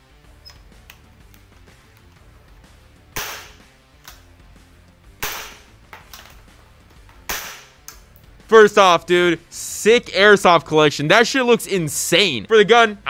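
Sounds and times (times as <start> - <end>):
faint background music: 0.0 - 13.0
sharp gunshot-like bangs: 3.2 - 3.6, 5.2 - 5.7, 7.3 - 7.8.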